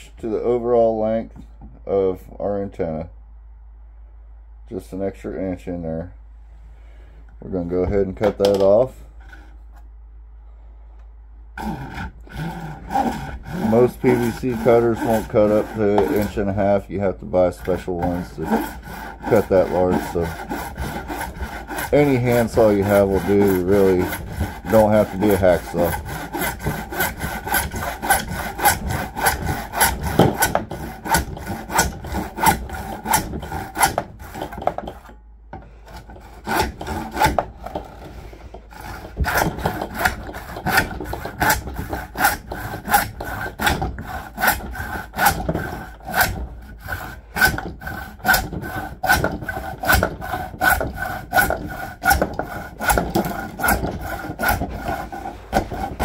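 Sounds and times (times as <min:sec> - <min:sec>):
handsaw cutting plastic pipe: 0:08.2 - 0:09.6, 0:11.6 - 0:56.0.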